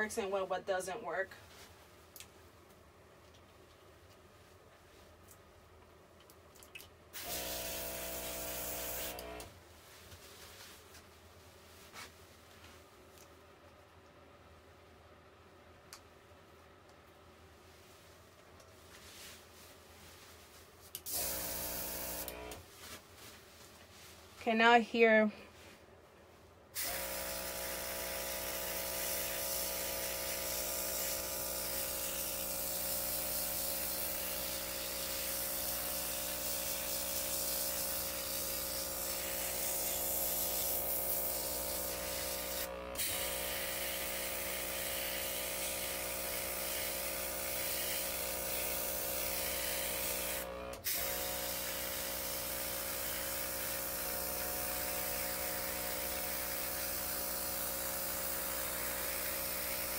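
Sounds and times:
small compressor humming: 7.2s - 9.5s, 21.0s - 22.6s, 26.8s - 59.9s
airbrush hissing: 26.8s - 59.9s.

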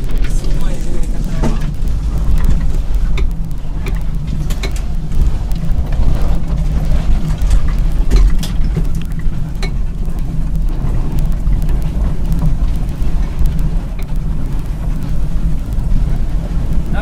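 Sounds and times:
car engine drone: 0.0s - 17.0s
clicks and knocks: 1.2s - 14.2s.

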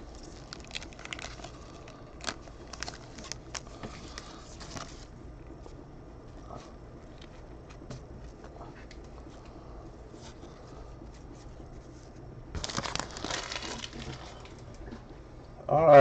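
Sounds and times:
wrapper crinkling: 0.0s - 5.1s, 12.6s - 15.0s.

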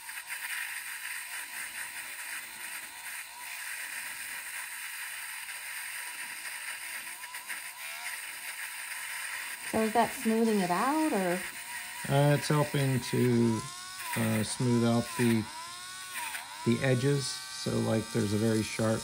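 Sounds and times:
rotary tool motor whine: 0.0s - 19.0s
wire brush hissing on metal: 0.0s - 19.0s.

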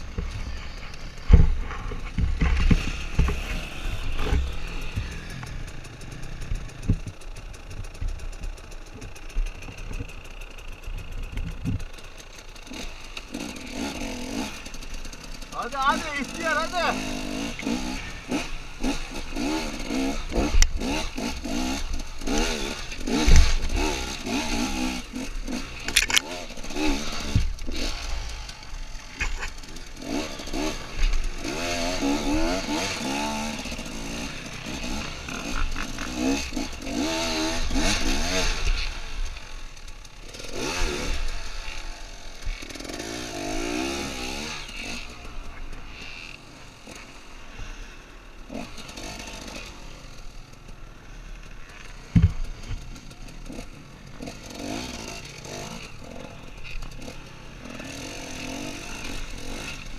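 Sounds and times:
dirt bike engine revving: 0.0s - 59.9s
bike knocking over rocks: 52.1s - 52.9s.

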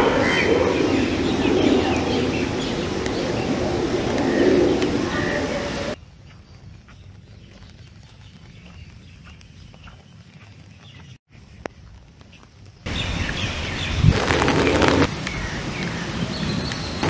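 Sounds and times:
loud even rushing noise: 0.0s - 6.0s, 12.9s - 17.0s
rain drops tapping on umbrella: 6.2s - 13.4s.

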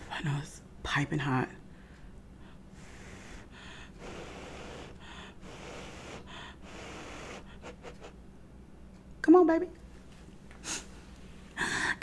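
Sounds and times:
soft breathing: 1.7s - 8.2s.

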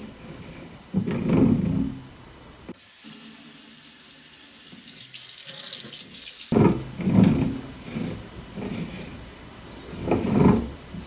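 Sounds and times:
steady high hiss: 2.7s - 6.5s
faucet spout grinding: 4.6s - 6.6s.

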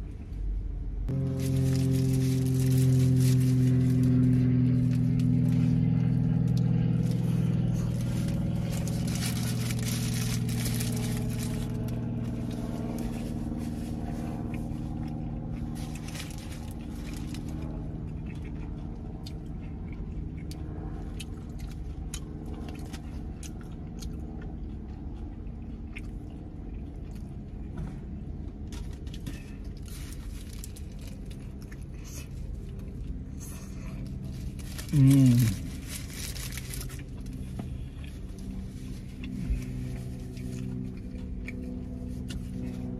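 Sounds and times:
low vehicle hum: 0.0s - 42.9s
paper wrapper rustling: 1.1s - 5.6s, 7.0s - 14.0s, 15.8s - 17.6s, 29.7s - 31.4s, 34.3s - 37.4s
chewing and biting food: 1.1s - 42.9s.

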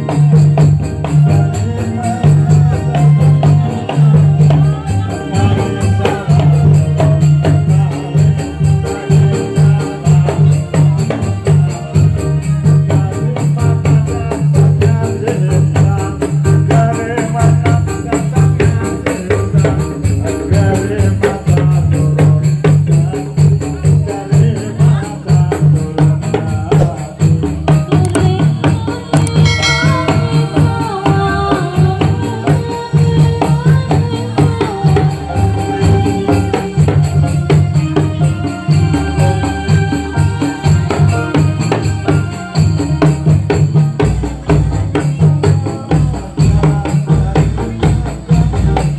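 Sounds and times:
drums: 0.0s - 48.9s
jingling tambourine percussion: 0.0s - 48.9s
melody line: 29.3s - 31.8s.

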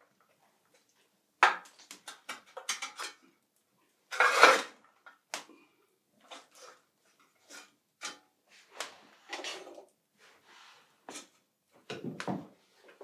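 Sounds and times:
iron tools scraping on coals: 4.1s - 4.7s.

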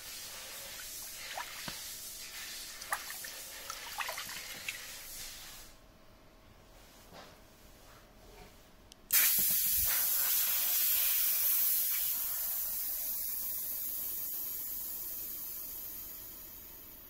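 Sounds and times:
compressed air hissing: 0.0s - 5.7s, 9.1s - 17.0s.

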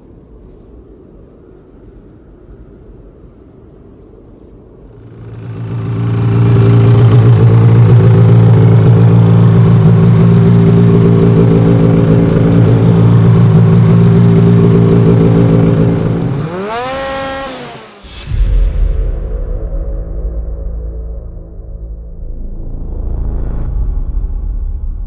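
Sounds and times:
engine idling: 5.0s - 17.8s
engine revving: 5.0s - 18.2s.

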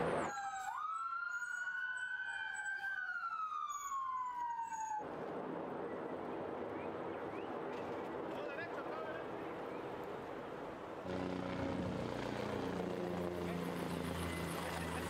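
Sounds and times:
emergency siren wailing: 0.0s - 5.0s, 11.1s - 15.0s.

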